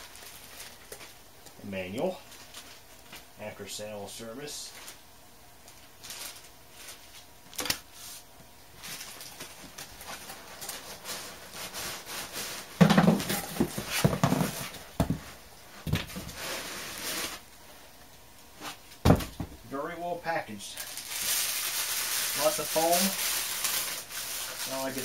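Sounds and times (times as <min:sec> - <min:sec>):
papers and foam rustling: 0:00.0 - 0:01.2, 0:01.9 - 0:03.2, 0:04.6 - 0:05.0, 0:05.6 - 0:17.8, 0:20.8 - 0:25.0
knocks on cardboard box: 0:19.0 - 0:19.6.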